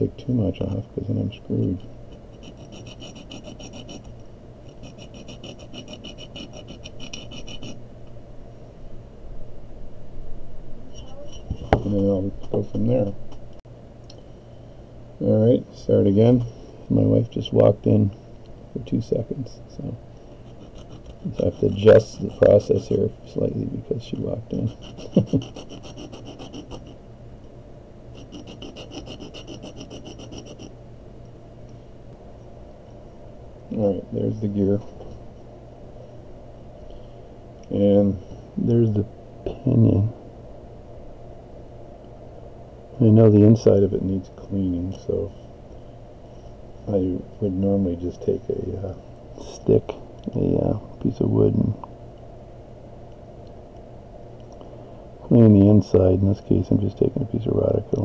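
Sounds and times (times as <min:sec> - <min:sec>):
metal rasping on diamond plate: 0:02.2 - 0:04.1, 0:04.7 - 0:07.8, 0:20.4 - 0:22.4, 0:24.6 - 0:27.0, 0:28.2 - 0:30.7.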